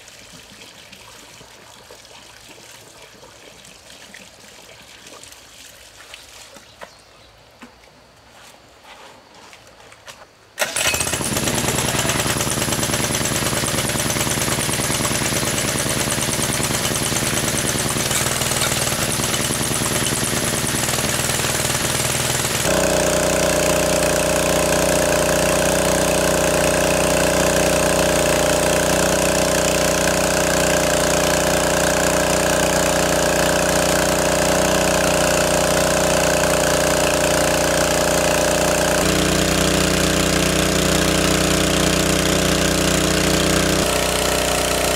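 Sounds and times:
engine-driven water pump running: 10.6 - 44.9.

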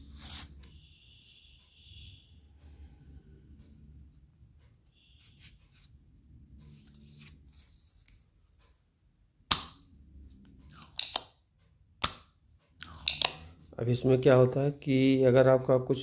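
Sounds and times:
desoldering pump clicks and snaps: 10.8 - 11.3.

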